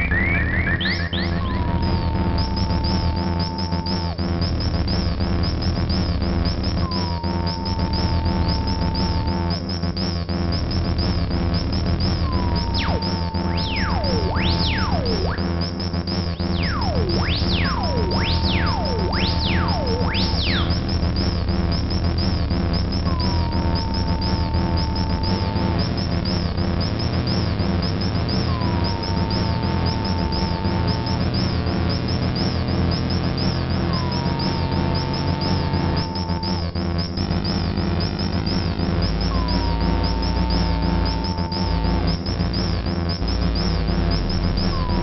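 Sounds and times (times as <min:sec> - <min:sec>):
fast high chirping texture: 0:00.0 - 0:45.0
low synthesizer drone pulsing: 0:00.0 - 0:45.0
fast falling synth sweeps: 0:16.5 - 0:20.9.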